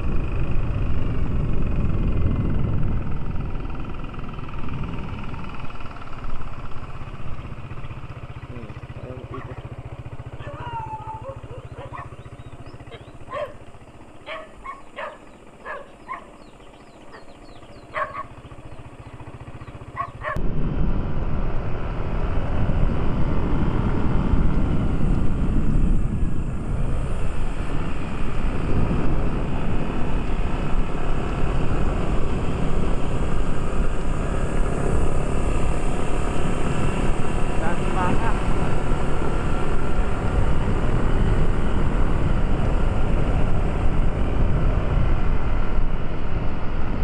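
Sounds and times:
vehicle engine noise: 0:00.0 - 0:47.0
wind rush from moving vehicle: 0:00.0 - 0:47.0
distant dog barks: 0:09.2 - 0:09.7, 0:10.4 - 0:16.5, 0:17.1 - 0:18.4, 0:19.9 - 0:20.4.

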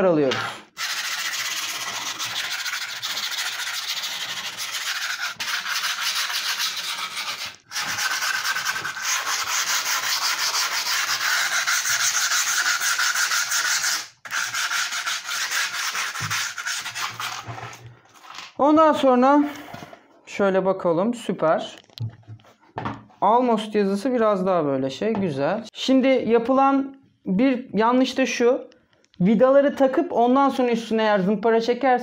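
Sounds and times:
grip tape scraping board edge: 0:00.3 - 0:18.5.

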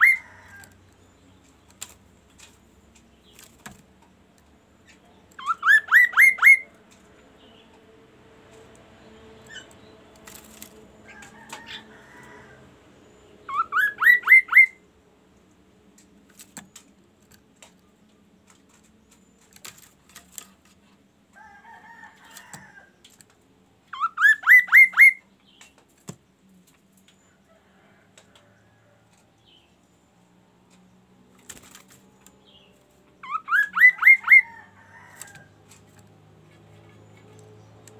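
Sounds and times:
bird chattering: 0:04.8 - 0:06.7, 0:33.2 - 0:34.5
songbird whistling: 0:05.4 - 0:06.7, 0:13.4 - 0:14.8, 0:23.9 - 0:25.3, 0:33.2 - 0:34.5.

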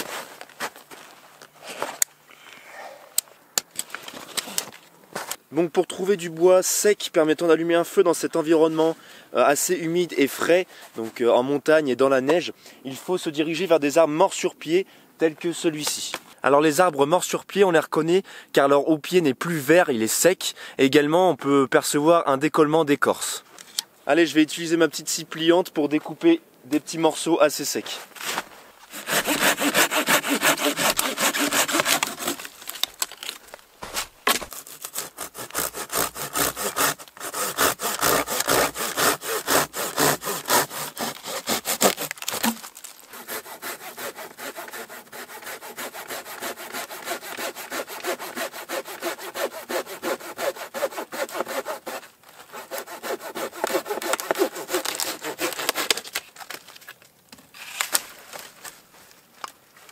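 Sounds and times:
saw cutting dry branches: 0:28.0 - 0:56.7.

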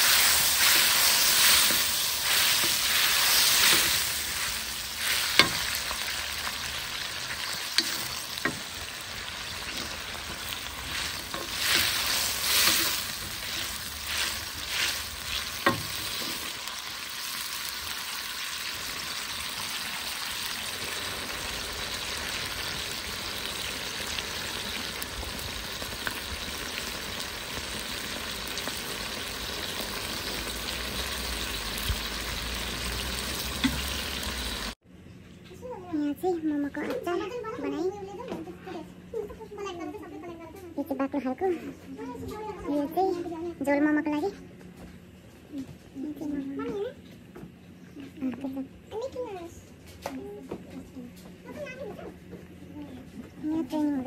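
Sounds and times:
vegetables sizzling in a wok: 0:00.0 - 0:34.8.

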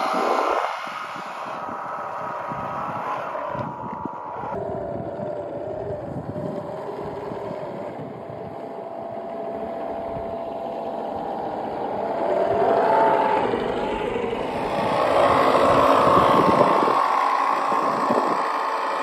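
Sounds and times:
toy car motor whine: 0:00.0 - 0:19.0
wheels churning snow: 0:00.0 - 0:19.0.

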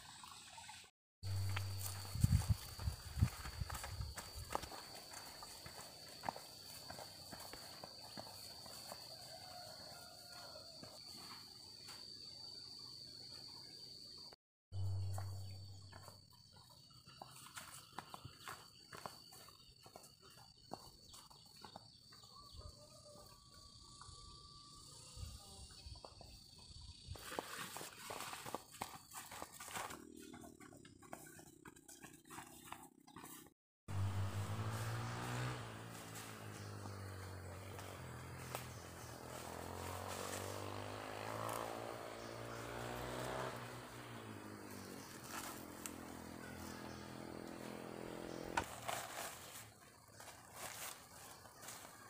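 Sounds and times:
footsteps on dirt path: 0:01.2 - 0:12.1, 0:14.8 - 0:22.4, 0:27.2 - 0:52.0
high insect drone: 0:01.3 - 0:30.7, 0:33.9 - 0:52.0
distant small engine running: 0:33.9 - 0:49.4.

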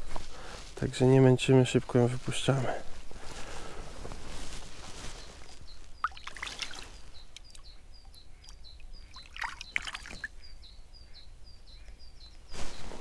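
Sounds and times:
water splashing and trickling: 0:05.4 - 0:10.4.

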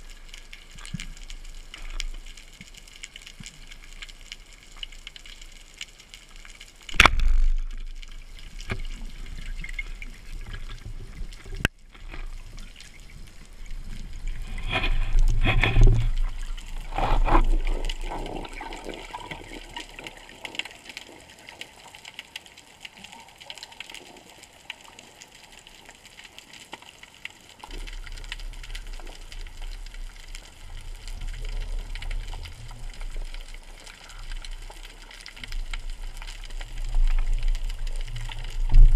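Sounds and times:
low rumble of water: 0:00.0 - 0:38.9.

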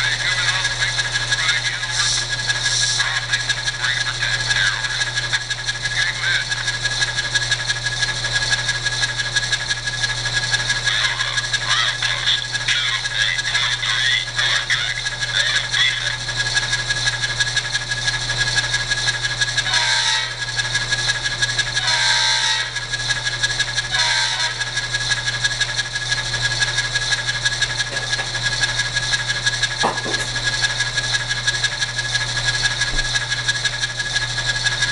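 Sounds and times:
model diesel engine idling: 0:00.0 - 0:34.9
locomotive horn blasts: 0:19.6 - 0:20.4, 0:21.8 - 0:22.7, 0:23.9 - 0:24.7.

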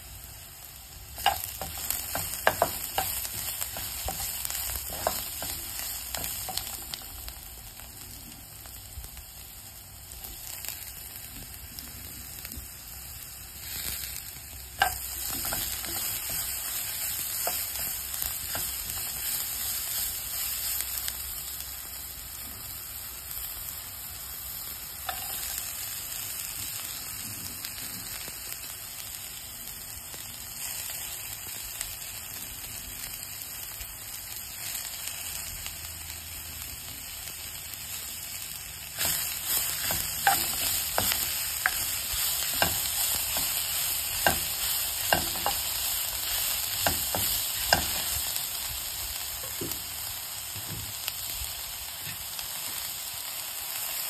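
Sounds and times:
aromatics sizzling in oil: 0:00.0 - 0:54.0
spatula knocking and scraping pan: 0:01.2 - 0:07.0, 0:14.8 - 0:19.5, 0:39.0 - 0:45.8, 0:46.7 - 0:48.2.

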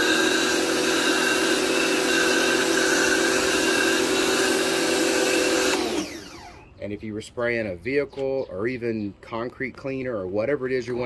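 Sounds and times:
pressure washer motor hum: 0:00.0 - 0:06.7.

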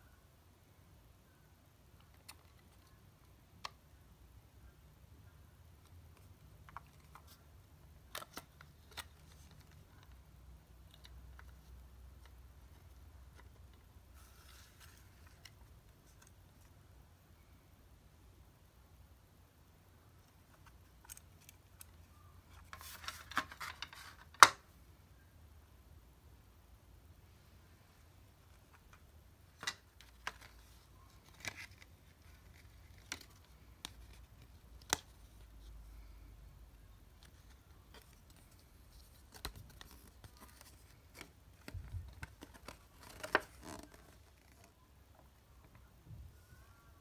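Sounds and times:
paper crackling and rustling: 0:29.5 - 0:35.6, 0:37.2 - 0:44.8.

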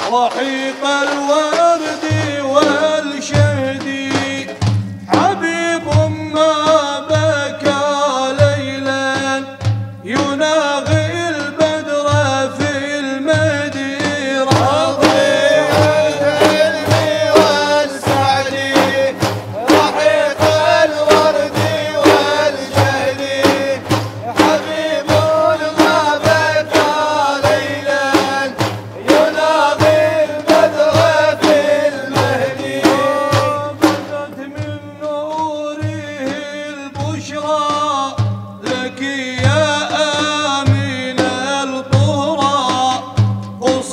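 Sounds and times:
frame drums beating: 0:00.0 - 0:43.9
man singing held notes: 0:14.5 - 0:26.8.

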